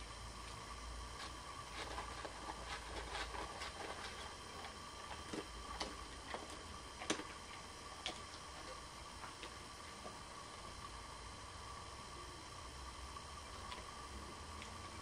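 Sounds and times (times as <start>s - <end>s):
dog chewing: 1.2s - 10.3s.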